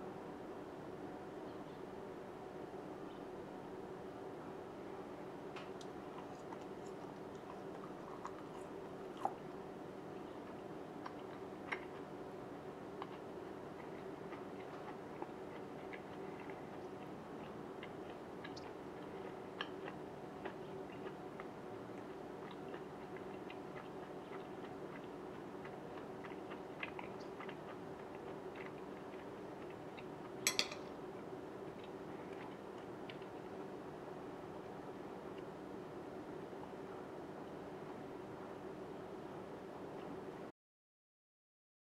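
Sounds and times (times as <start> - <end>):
low steady hum: 0.0 - 40.5
faint chewing: 5.5 - 33.8.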